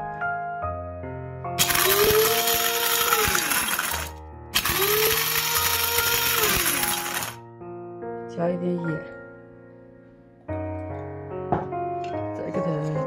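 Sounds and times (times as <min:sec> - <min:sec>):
background music: 0:00.0 - 0:13.0
electric spice grinder whine: 0:01.6 - 0:07.4.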